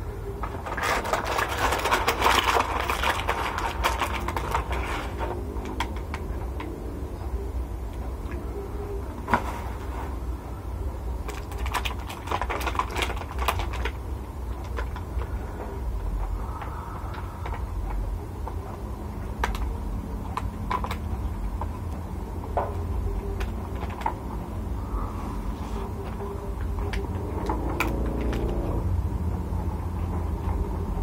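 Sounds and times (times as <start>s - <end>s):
fingers in plastic container: 0.4s - 6.8s, 11.2s - 22.0s.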